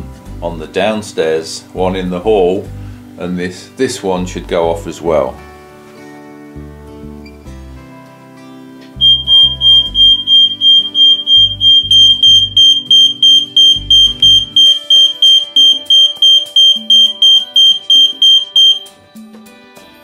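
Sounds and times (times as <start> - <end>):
fire alarm beeping: 9.0 - 18.9.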